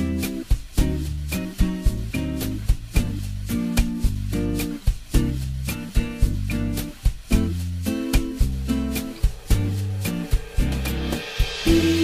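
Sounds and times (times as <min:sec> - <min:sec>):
background music with beat: 0:00.0 - 0:12.0
plucked guitar: 0:00.0 - 0:12.0.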